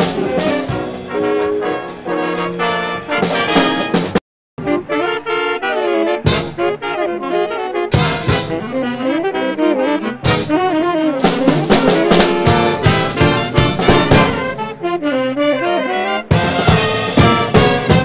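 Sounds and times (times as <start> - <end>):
drum and cymbal hits: 0.0 - 4.2, 8.0 - 8.6, 11.2 - 14.6, 16.3 - 18.0
jazz saxophone solo over band: 0.0 - 18.0.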